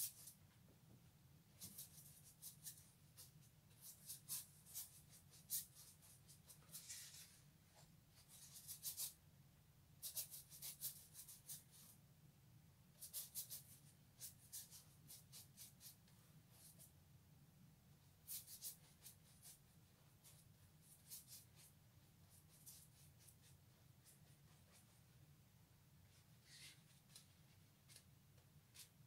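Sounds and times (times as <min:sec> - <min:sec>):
brush scratching on paper: 0:01.6 - 0:07.5, 0:08.2 - 0:09.2, 0:10.0 - 0:12.0, 0:13.0 - 0:17.0, 0:18.2 - 0:25.2, 0:26.0 - 0:28.0, 0:28.7 - 0:29.0.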